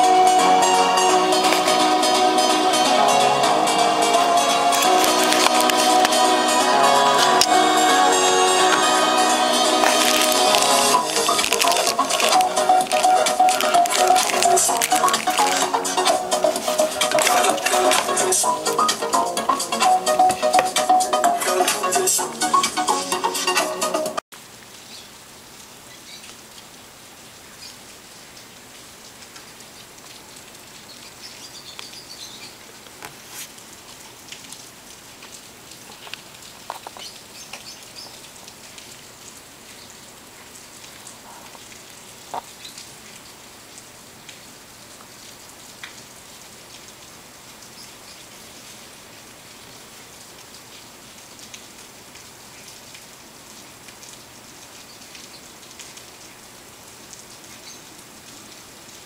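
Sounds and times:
fingers clicking and tapping: 4.8 - 6.2, 9.8 - 18.2, 20.2 - 21.0.

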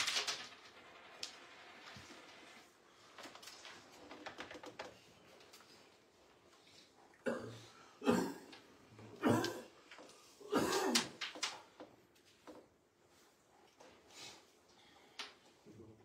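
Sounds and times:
person coughing: 7.2 - 8.6, 9.2 - 9.8, 10.4 - 11.1
person clearing throat: 7.2 - 9.8, 10.4 - 11.2.

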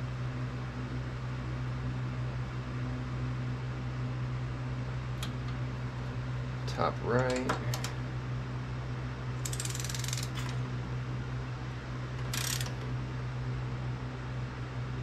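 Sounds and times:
steady low hum: 0.0 - 15.0
socket wrench ratchet clicking: 9.4 - 10.6, 12.2 - 12.8.

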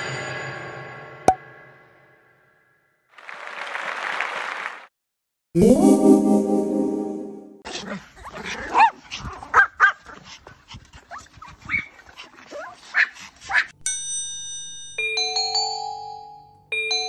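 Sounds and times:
held musical tone: 5.6 - 7.6
small dogs yapping and whining: 7.7 - 13.8.

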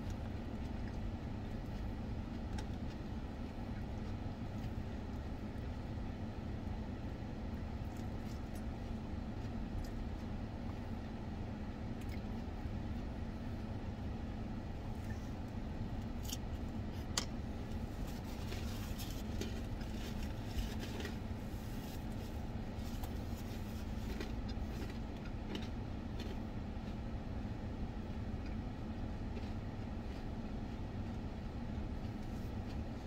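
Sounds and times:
small clicks of eating: 0.0 - 5.8, 7.8 - 10.4, 11.9 - 13.1, 22.9 - 27.1, 28.3 - 33.0
paper napkin rustling: 17.8 - 24.0.

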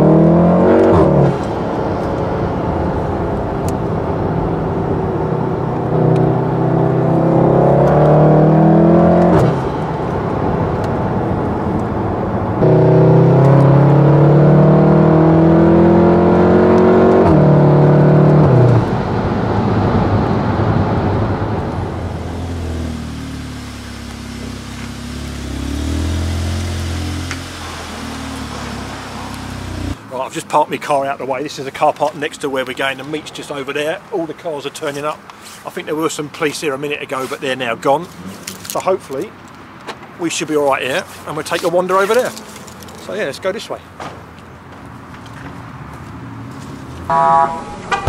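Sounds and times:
car engine accelerating: 0.0 - 30.0.

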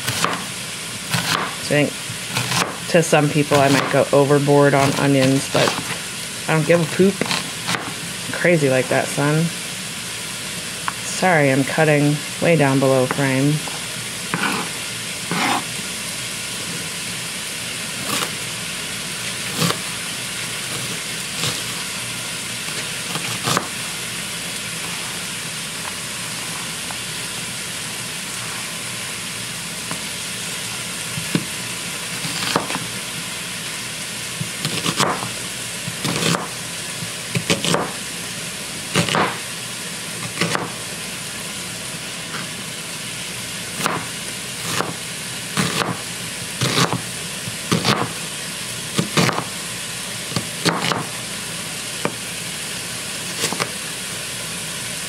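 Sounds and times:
knife chopping on cutting board: 0.0 - 0.5, 1.1 - 1.6, 2.4 - 2.8, 3.5 - 4.0, 7.2 - 8.0, 14.3 - 15.7, 22.7 - 23.8, 32.2 - 32.8, 34.4 - 35.3, 35.9 - 36.5, 37.3 - 38.0, 38.9 - 39.4, 40.2 - 40.8, 43.8 - 45.0, 45.6 - 46.0, 46.6 - 47.0, 47.7 - 48.2, 49.0 - 49.5, 50.4 - 51.1, 53.3 - 53.7
chicken sizzling in a pan: 0.0 - 55.0.

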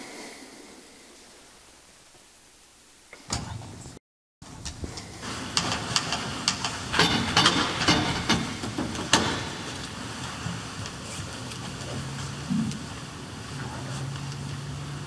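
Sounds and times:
steady hiss: 0.0 - 15.0
sharp clicks and knocks: 4.5 - 13.0.

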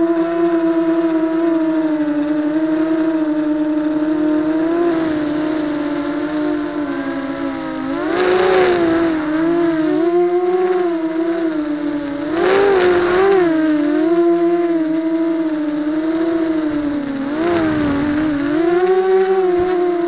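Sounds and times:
quadcopter motors whining: 0.0 - 20.0
rush of air: 16.7 - 18.7.

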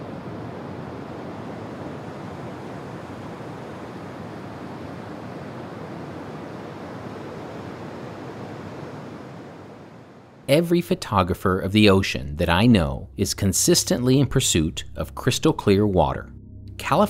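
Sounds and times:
ocean waves washing: 0.0 - 11.6.

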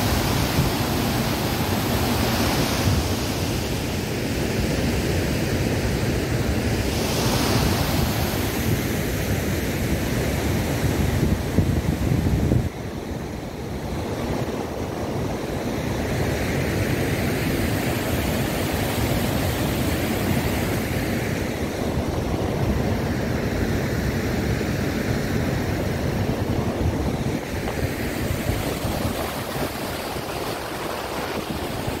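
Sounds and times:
white-water river rushing: 0.0 - 4.3, 16.6 - 32.0
wind rumble on microphone: 0.0 - 32.0.

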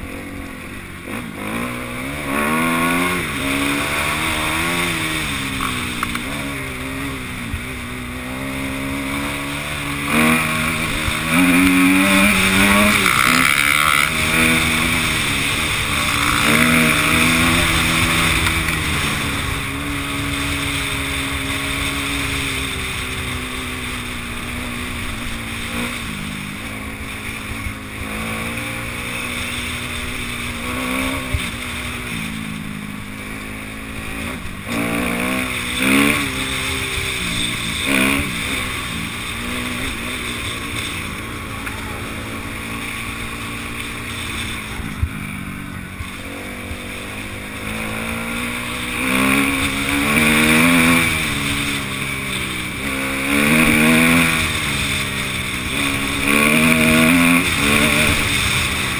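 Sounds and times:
dirt bike engine revving: 0.0 - 58.9
wind and trail noise: 0.0 - 58.9.

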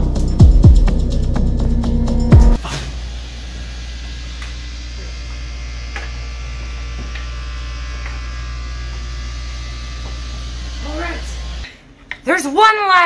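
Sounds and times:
music: 0.0 - 2.6.

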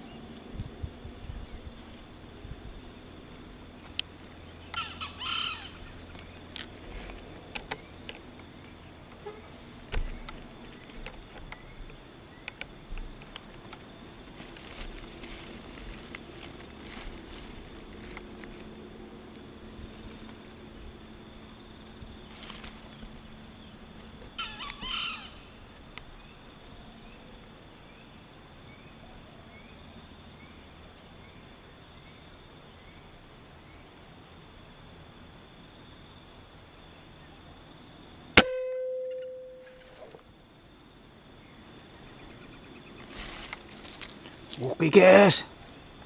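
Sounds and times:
insect chirring: 0.0 - 30.7, 31.5 - 46.0
ringing hum: 38.4 - 40.2.

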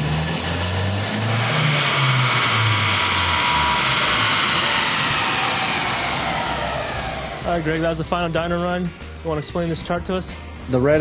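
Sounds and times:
car engine at full throttle: 0.0 - 8.7
steady rushing noise: 0.0 - 9.2.

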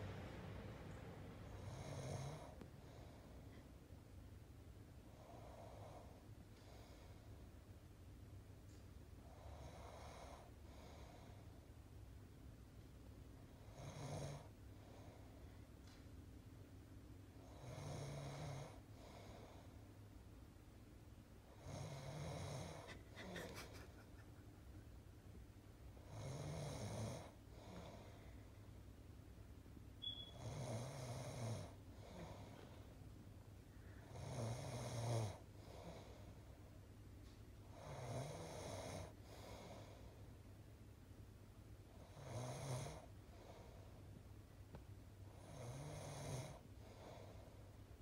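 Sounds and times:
man snoring: 1.6 - 2.6, 13.7 - 14.5, 17.5 - 18.8, 21.6 - 22.9, 26.1 - 28.0, 30.4 - 32.5, 34.1 - 36.0, 37.8 - 39.7, 42.0 - 43.1, 45.4 - 47.2.

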